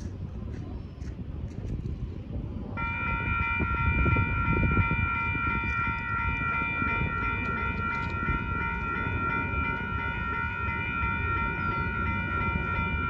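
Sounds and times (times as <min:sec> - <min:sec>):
crossing warning bell ringing: 0:02.8 - 0:13.0.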